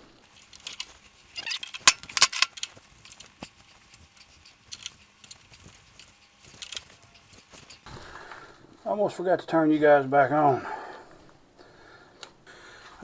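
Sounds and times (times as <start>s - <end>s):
sharp metal clicks: 0.4s - 7.9s.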